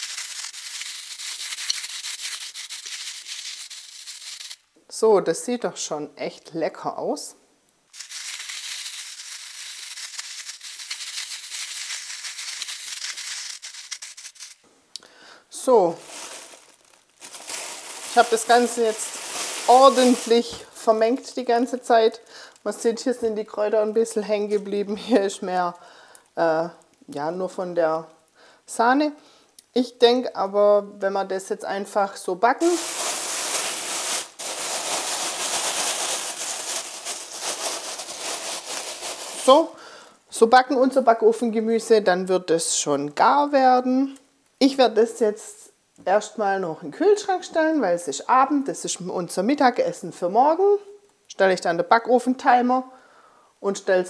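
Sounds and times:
plastic bag crinkling and rustling: 0.0 - 4.6, 7.9 - 14.6, 15.6 - 21.4, 32.6 - 39.7
vegetable pieces rattling in bag: 0.0 - 4.6, 7.9 - 14.6, 15.8 - 21.2, 32.6 - 39.7.

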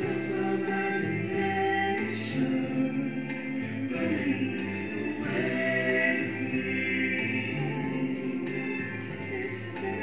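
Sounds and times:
harmony backing vocals: 0.0 - 10.0
man singing: 0.0 - 10.0.

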